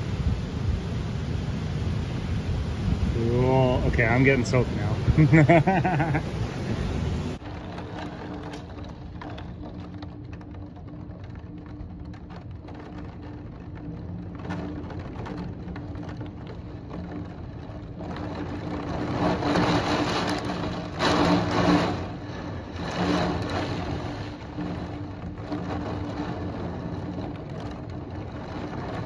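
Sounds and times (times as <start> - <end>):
heavy rain: 0.0 - 29.0
low mechanical hum: 3.8 - 29.0.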